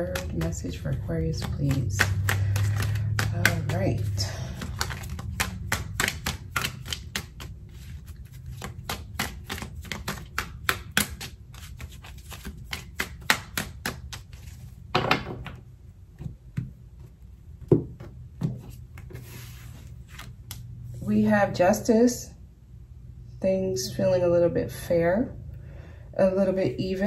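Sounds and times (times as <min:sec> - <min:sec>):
cards rustling: 0:00.0 - 0:14.9, 0:18.6 - 0:20.7
cards shuffling: 0:00.0 - 0:14.9, 0:18.0 - 0:20.8
cards tapped on wooden table: 0:04.6 - 0:07.5.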